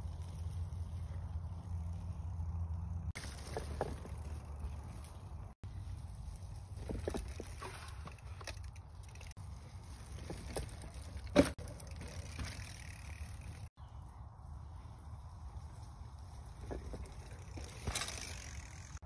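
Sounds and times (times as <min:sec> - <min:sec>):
bike tyres crunching on dirt: 0:00.0 - 0:19.0
bike knocking on wooden ramp: 0:10.2 - 0:12.6.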